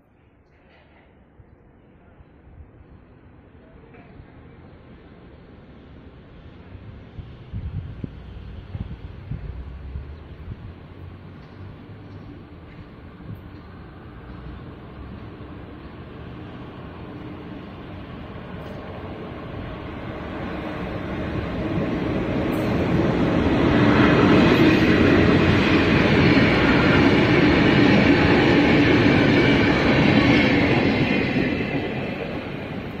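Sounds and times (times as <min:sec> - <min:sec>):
freight train rumble: 0:00.2 - 0:33.0
wheels clickety-clack: 0:11.3 - 0:15.4.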